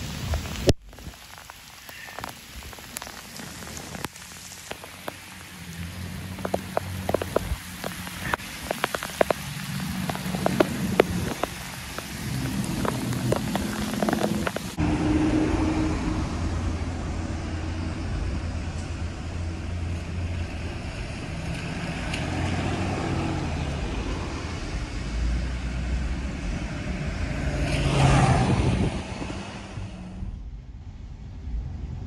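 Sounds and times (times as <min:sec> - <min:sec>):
road noise: 0:00.0 - 0:32.0
engine hum: 0:02.9 - 0:32.0
vehicle passing close by: 0:09.3 - 0:30.3.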